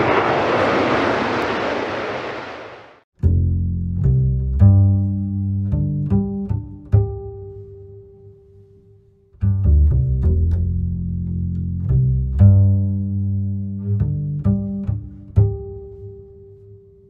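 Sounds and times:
low string music: 0:03.2 - 0:17.0.

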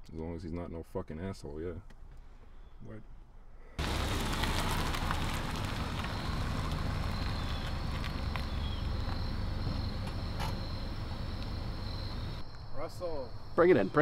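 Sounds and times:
car rolling and braking: 0:03.8 - 0:12.4.

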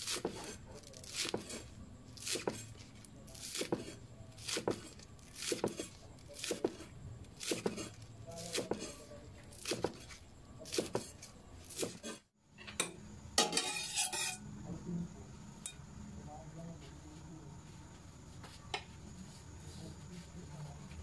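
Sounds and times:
knife chopping on wooden board: 0:00.0 - 0:01.6, 0:02.2 - 0:02.7, 0:03.4 - 0:09.0, 0:09.6 - 0:12.2
metal spoon scraping pot: 0:13.4 - 0:14.4.

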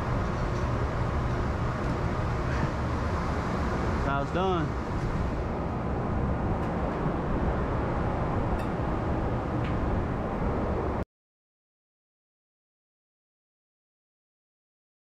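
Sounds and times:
low rumbling background noise: 0:00.0 - 0:11.0.

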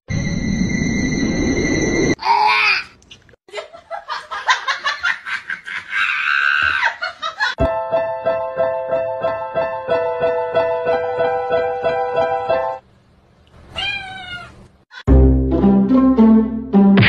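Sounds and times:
person laughing and shrieking: 0:05.6 - 0:07.6.

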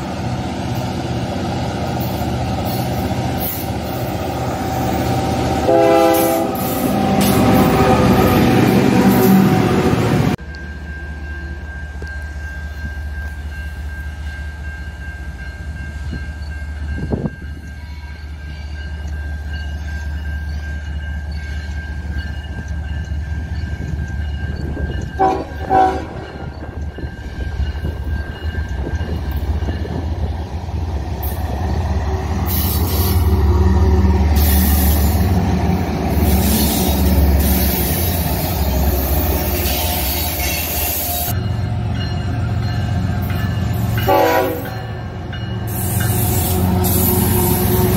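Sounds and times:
train wheel noise: 0:00.0 - 0:47.9
locomotive air horn: 0:05.6 - 0:08.4, 0:25.2 - 0:26.3, 0:36.2 - 0:41.4, 0:44.0 - 0:44.8.

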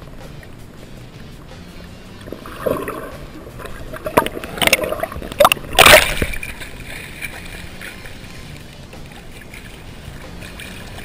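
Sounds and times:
water sloshing and gurgling: 0:00.0 - 0:11.0
loud water splashes: 0:02.3 - 0:08.4.

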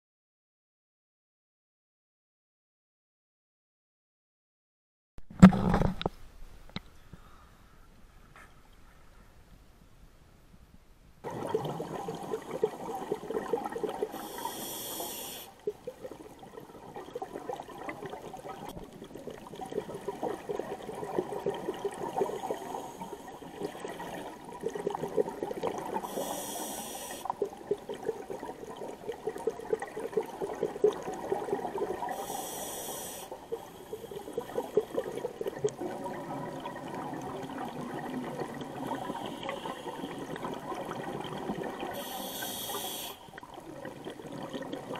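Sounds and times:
bubbling exhaust bubbles underwater: 0:11.2 - 0:44.9
high hiss of inhaled air: 0:14.1 - 0:15.6, 0:26.0 - 0:27.3, 0:32.1 - 0:34.1, 0:42.0 - 0:43.4.

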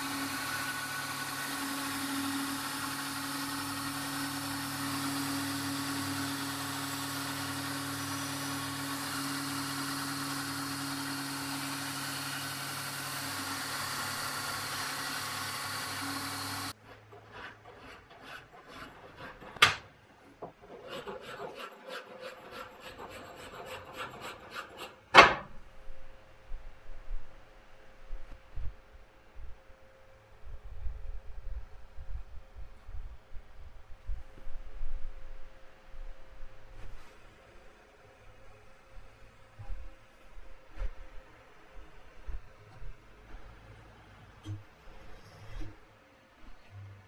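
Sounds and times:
belt grinder grinding steel: 0:00.0 - 0:16.8
hand file on steel: 0:00.0 - 0:19.6, 0:20.6 - 0:25.0.

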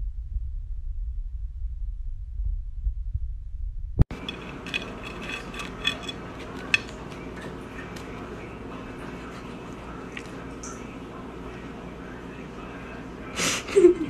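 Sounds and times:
low muffled rumble: 0:00.0 - 0:04.1
claws clinking on plate: 0:04.1 - 0:10.5.

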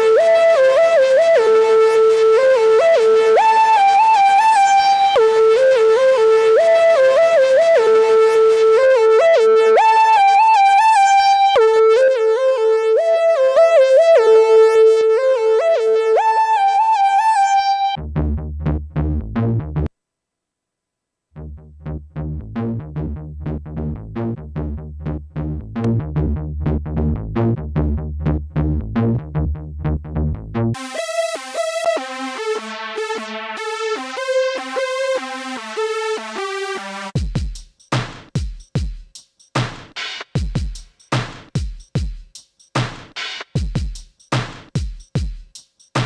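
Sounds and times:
synthesizer lead melody: 0:00.0 - 0:18.2, 0:29.7 - 0:37.2
plucked synth bass sequence: 0:18.0 - 0:19.9, 0:21.4 - 0:37.1.

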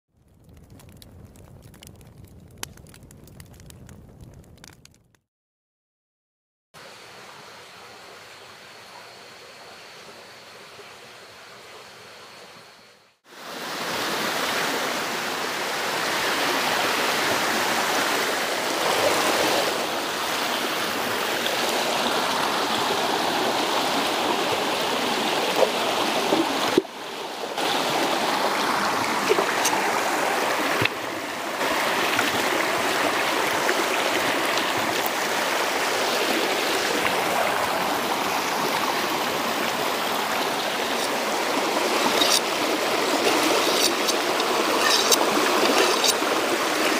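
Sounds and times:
stream flowing over stones: 0:13.3 - 0:46.9.

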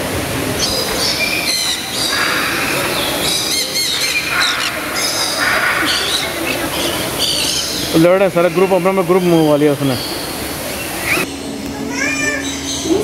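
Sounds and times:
parrots screeching: 0:00.6 - 0:10.2.

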